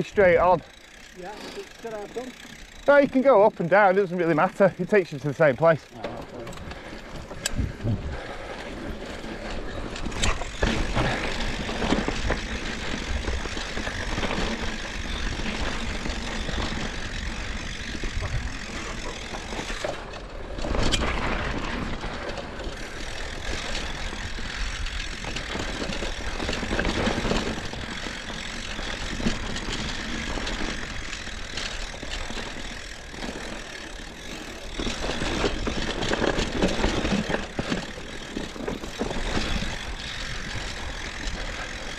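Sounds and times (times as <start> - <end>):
ride rumble: 0.0 - 41.9
wind buffeting microphone: 6.6 - 8.4.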